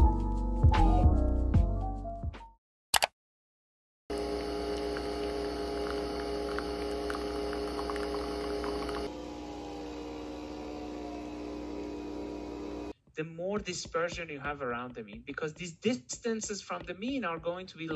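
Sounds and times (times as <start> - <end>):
coffee streaming into mug: 4.1 - 9.1
coffee machine motor hum: 4.1 - 12.9.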